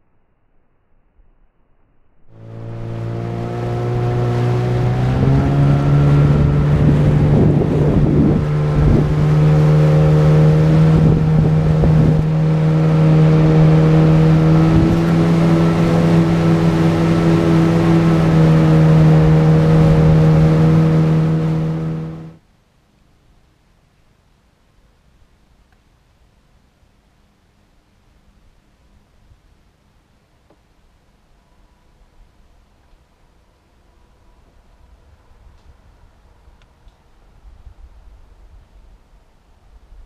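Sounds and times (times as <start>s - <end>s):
outboard motor running: 2.3s - 22.4s
water rushing past hull: 2.3s - 22.4s.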